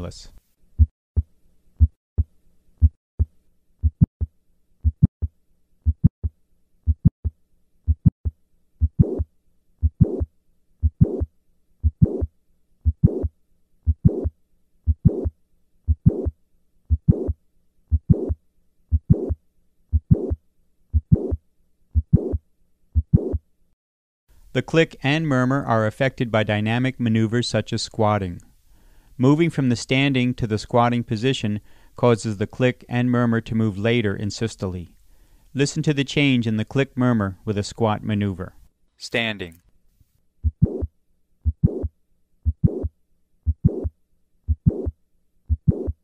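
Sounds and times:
heartbeat sounds: 0.8s - 6.2s, 6.9s - 13.3s, 13.9s - 14.3s, 14.9s - 15.3s, 15.9s - 16.3s, 16.9s - 22.4s, 23.0s - 23.4s, 40.4s - 43.9s, 44.5s - 44.9s, 45.5s - 46.0s
heart murmur: 4.8s - 5.3s, 5.9s - 6.2s, 6.9s - 7.1s, 7.9s - 8.1s, 8.8s - 9.2s, 9.8s - 13.3s, 13.9s - 14.3s, 14.9s - 15.3s, 15.9s - 16.3s, 16.9s - 21.4s, 22.0s - 22.4s, 23.0s - 23.4s, 40.4s - 42.9s, 43.5s - 43.9s, 44.5s - 44.9s, 45.5s - 46.0s.

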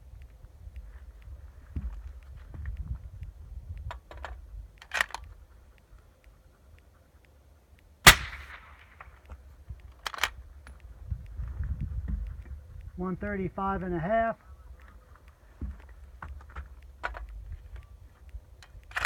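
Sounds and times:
short clicks: 2.0s - 19.0s
suppressed rifle shot: 8.0s - 9.2s.

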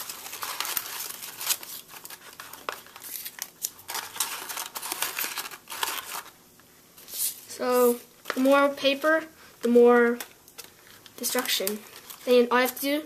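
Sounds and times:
paper crinkling and rustling: 0.0s - 6.4s, 10.0s - 12.9s.

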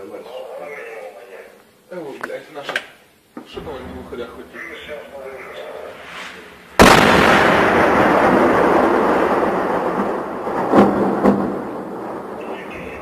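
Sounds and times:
tank shell explosion: 3.6s - 13.0s
sharp cracks: 5.9s - 13.0s.

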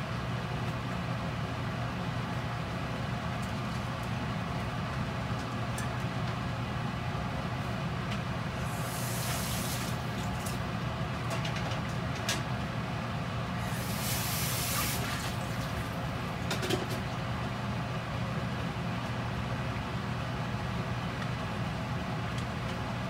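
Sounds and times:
steady low hum: 6.8s - 11.4s
steam hissing: 8.6s - 10.2s, 13.6s - 15.9s.

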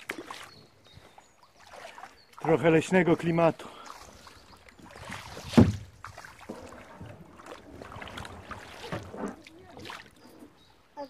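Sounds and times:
kayak paddle splashing: 0.0s - 11.0s.

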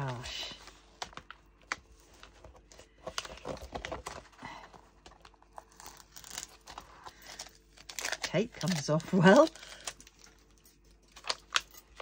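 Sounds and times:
plastic film crackling: 5.2s - 12.0s.

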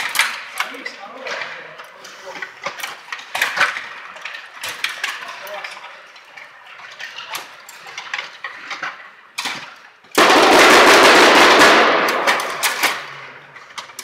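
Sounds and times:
table hockey players clicking: 0.0s - 14.0s
loud rapid rattling clatter: 10.2s - 12.9s.

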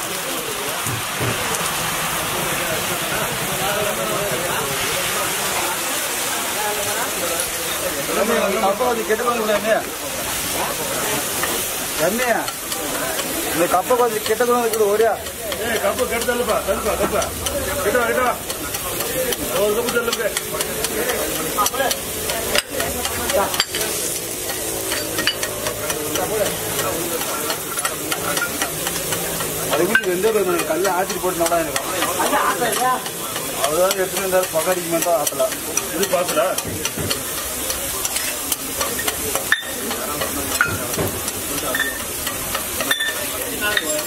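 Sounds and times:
eggs sizzling on a griddle: 0.0s - 44.0s
metal spatula scraping: 11.2s - 44.0s
spatula tapping iron plate: 12.4s - 44.0s.

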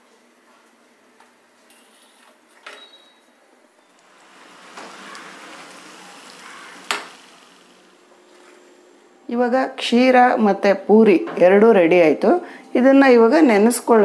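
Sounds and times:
oil sizzling: 3.8s - 9.3s.

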